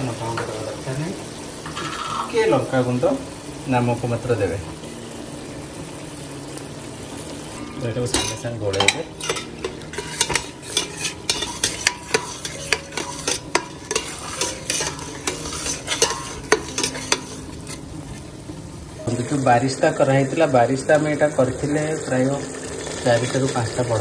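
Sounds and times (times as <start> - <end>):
spices sizzling in hot oil: 0.0 - 24.0
utensil clinking and scraping pot: 1.6 - 2.4, 7.6 - 18.0.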